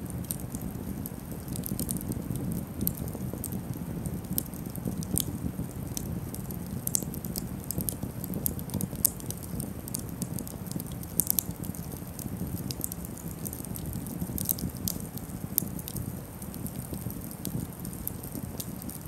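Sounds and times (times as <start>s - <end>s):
burning sticks crackling and popping: 0.0s - 19.0s
campfire flames rushing: 0.0s - 19.0s.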